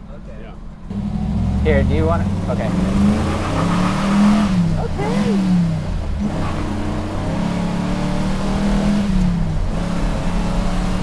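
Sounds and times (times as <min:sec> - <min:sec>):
car engine accelerating hard: 0:00.8 - 0:11.0.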